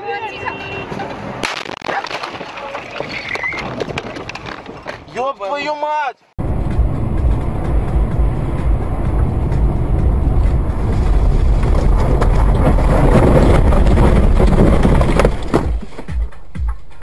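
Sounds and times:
car cabin road rumble: 6.4s - 16.2s.

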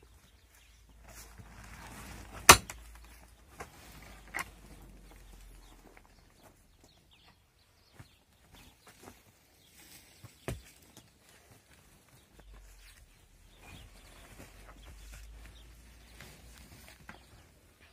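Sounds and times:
mattock striking earth floor: 1.4s - 4.4s.

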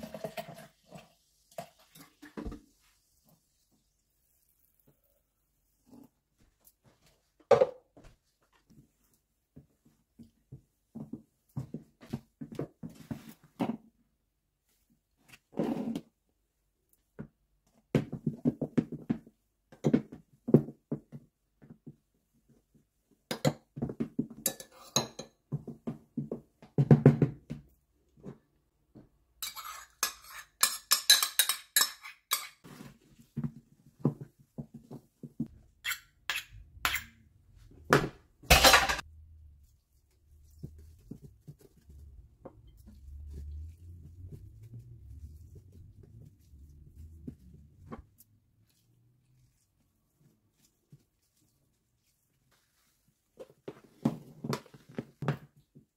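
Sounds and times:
ladle and spoons on plastic bowls: 23.3s - 25.4s, 29.4s - 32.9s, 35.4s - 37.4s.

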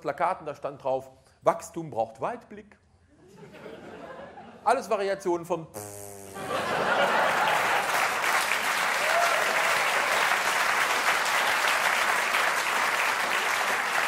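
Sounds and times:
audience applauding: 6.5s - 14.0s.

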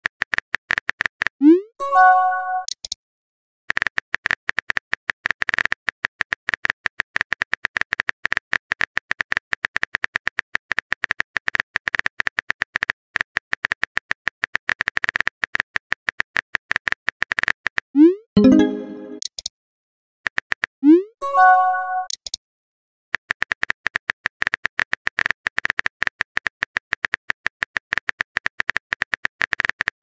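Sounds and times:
message chime: 1.8s - 2.7s, 18.4s - 19.2s, 21.2s - 22.1s.

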